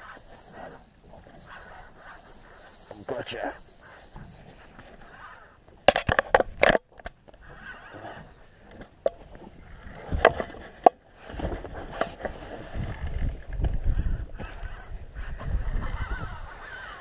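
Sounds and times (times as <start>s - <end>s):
wind noise on microphone: 7.4s - 17.0s.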